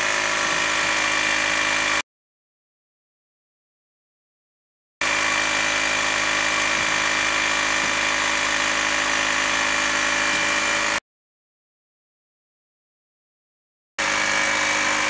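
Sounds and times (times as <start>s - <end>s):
air compressor running: 0.0s - 2.0s, 5.0s - 11.0s, 14.0s - 15.0s.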